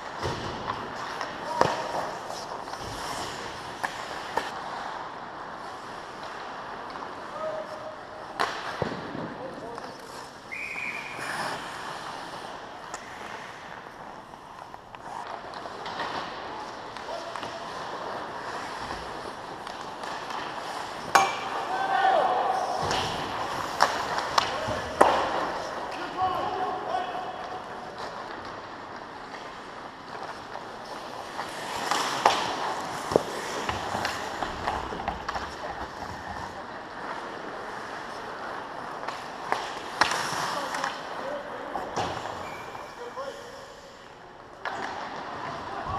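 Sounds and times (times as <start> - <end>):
voices echoing in arena: 0.0 - 4.8, 5.6 - 45.9
skates scraping ice: 0.0 - 45.9
stick hitting puck: 19.6 - 21.8, 22.8 - 25.7, 31.3 - 36.0
hockey stick or puck clicks: 31.3 - 35.9, 39.0 - 41.1.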